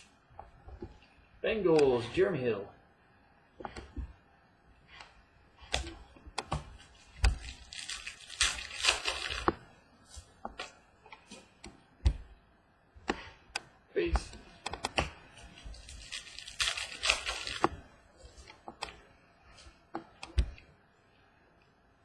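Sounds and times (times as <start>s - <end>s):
cards rustling and sliding: 4.9s - 11.7s, 14.2s - 19.0s.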